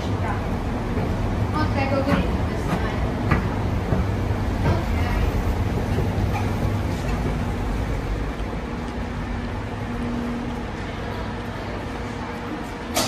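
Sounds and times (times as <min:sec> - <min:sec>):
escalator machinery humming: 0:00.0 - 0:13.0.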